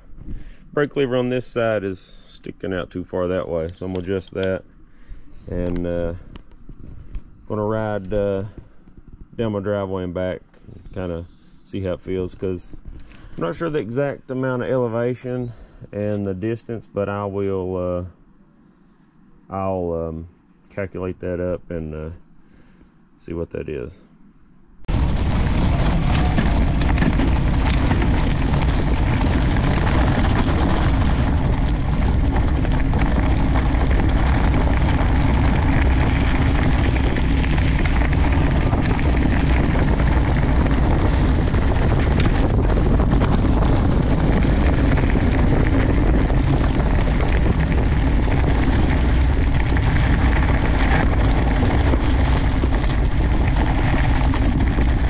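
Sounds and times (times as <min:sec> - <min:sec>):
bike tyres rolling over gravel: 0:00.0 - 0:18.1, 0:24.9 - 0:55.0
wind buffeting microphone: 0:24.9 - 0:55.0.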